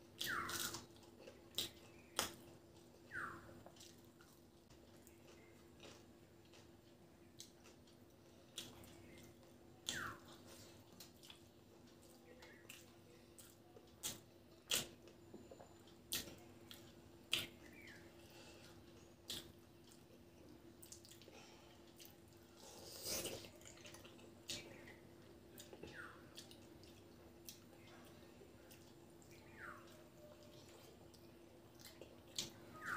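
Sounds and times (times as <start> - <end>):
faint steady hum: 0.0 - 32.9
fingers squishing food: 0.1 - 18.1
open-mouthed chewing: 0.1 - 32.9.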